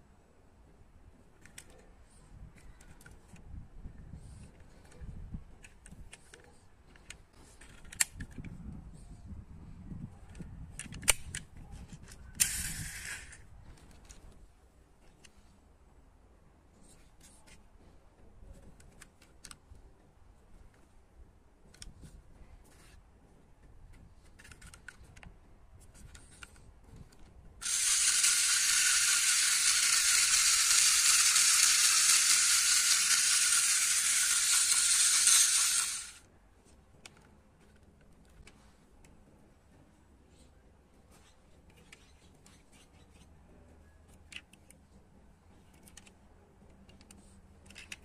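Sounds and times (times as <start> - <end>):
toy motor rattling whir: 10.3 - 14.2, 25.9 - 36.3.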